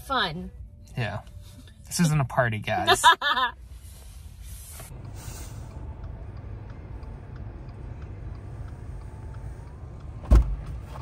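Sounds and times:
car engine rumbling: 0.0 - 11.0
car door thumping shut: 10.2 - 10.6.

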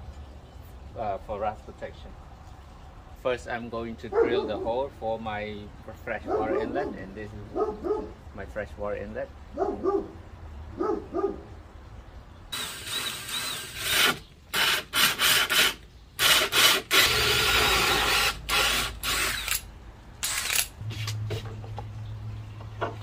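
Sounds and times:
power drill cutting through metal: 12.6 - 19.6.

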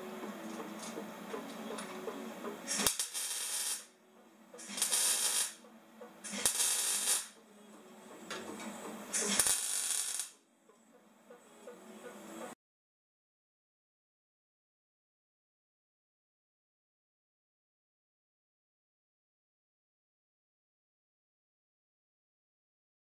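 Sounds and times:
welder click: 2.7 - 3.8
welding arc bursts: 2.7 - 3.9, 4.6 - 5.6, 6.3 - 7.4, 9.1 - 10.4.

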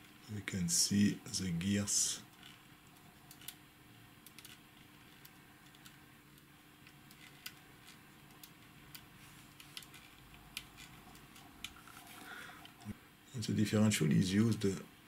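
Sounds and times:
low steady hum: 0.0 - 15.0
small metal gear clicks: 2.3 - 3.6, 4.2 - 6.0, 6.8 - 9.0.

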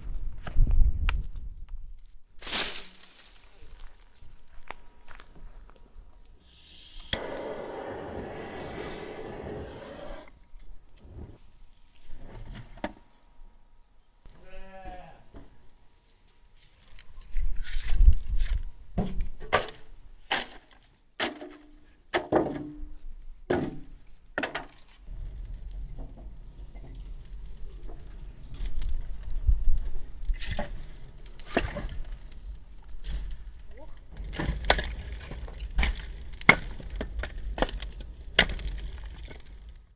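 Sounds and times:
sheep or goat bleat: 14.3 - 15.3.

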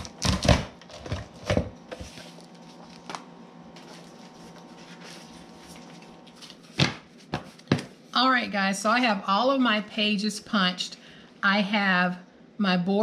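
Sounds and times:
paper handling noise: 0.0 - 8.1.

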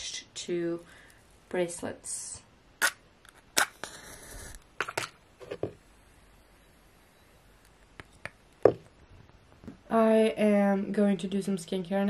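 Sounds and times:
match striking and flaring: 2.8 - 5.1.

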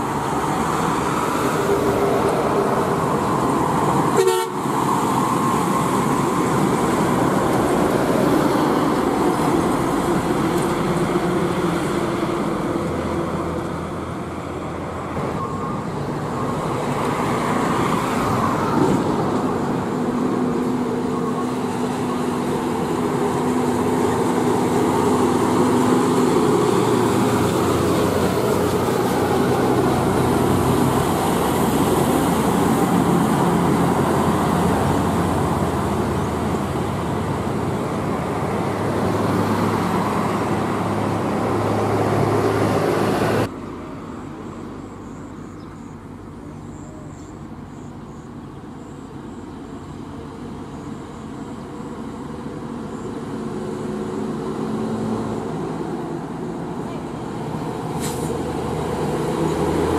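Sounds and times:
diesel trucks driving past: 0.0 - 59.9
tyres on road: 0.0 - 59.9.

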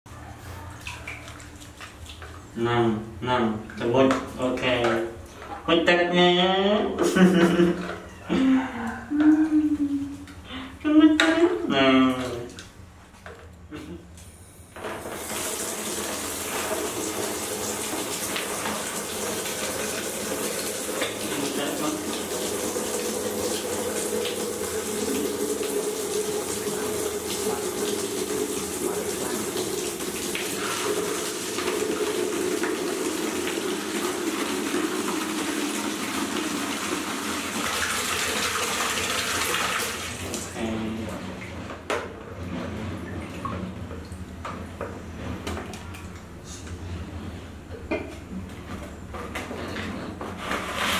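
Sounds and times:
water from tap splashing into basin: 0.8 - 2.5, 14.8 - 40.6.

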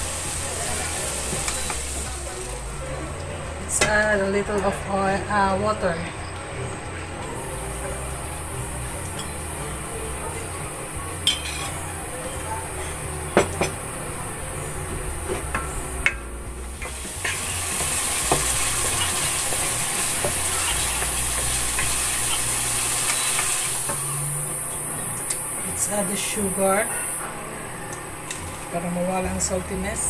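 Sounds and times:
sauce sizzling: 0.0 - 2.7, 7.2 - 27.3.

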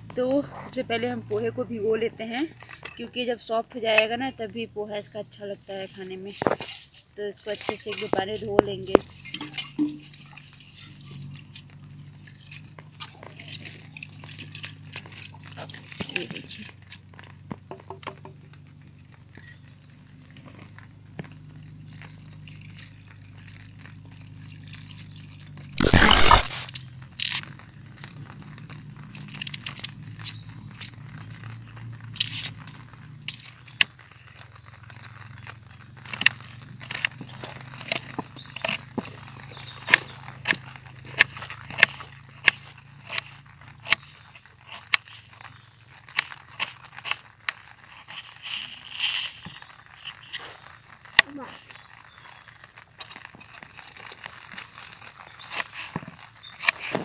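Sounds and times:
wet rice crunching: 21.3 - 31.0, 31.8 - 57.0
knife scraping onion skin: 25.8 - 26.7.

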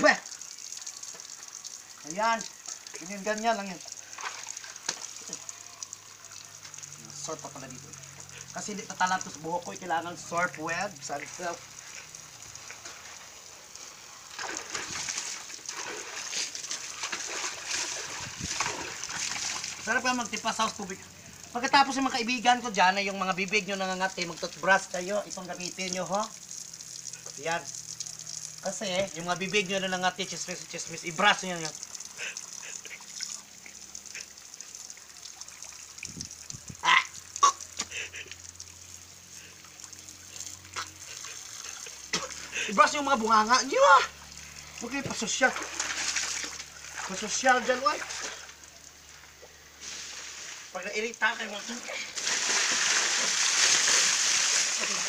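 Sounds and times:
water splashing into tub: 0.0 - 9.8, 14.2 - 42.7, 43.3 - 55.0
person spluttering: 32.1 - 33.4, 36.6 - 38.4, 40.4 - 42.8
hose spray hiss: 49.8 - 50.8.

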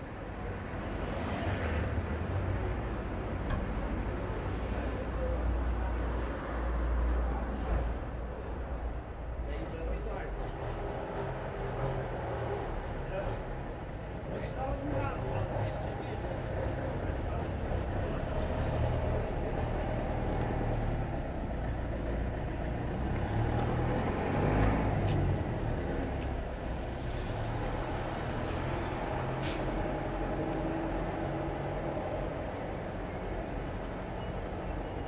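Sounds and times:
car and truck engines: 0.0 - 35.0
short sharp hiss: 29.4 - 29.8.

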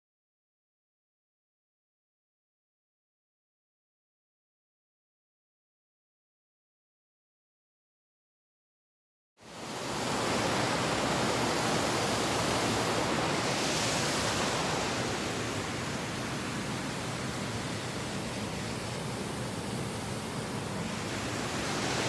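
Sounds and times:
brook water rushing over rocks: 9.6 - 22.0.

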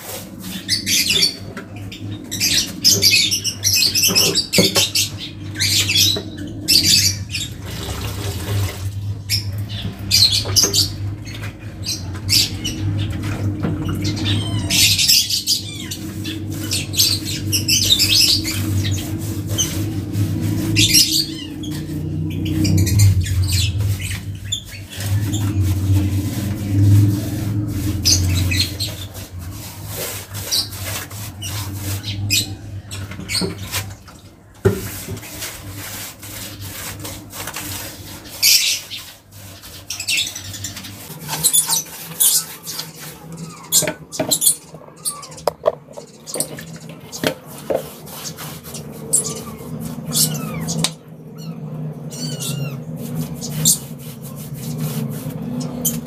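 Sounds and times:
low steady hum: 0.0 - 38.2
brush scrubbing concrete: 0.0 - 56.0.

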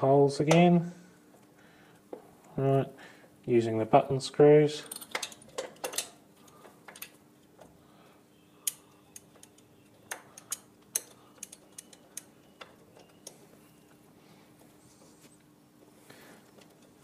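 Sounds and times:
faint steady hum: 0.0 - 17.0
small metallic clicks and taps: 4.9 - 7.7, 8.6 - 13.4.

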